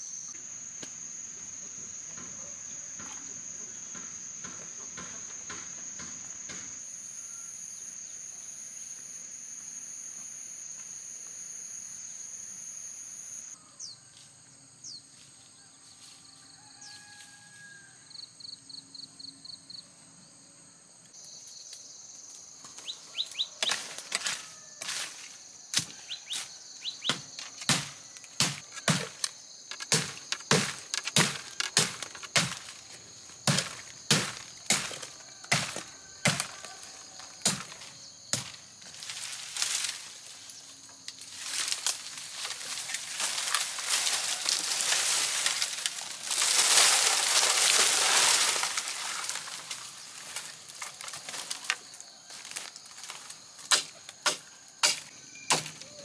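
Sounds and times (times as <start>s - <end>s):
high insect drone: 0.0s - 56.0s
sharp chopping blows: 27.0s - 32.8s, 33.4s - 36.5s, 53.7s - 55.8s.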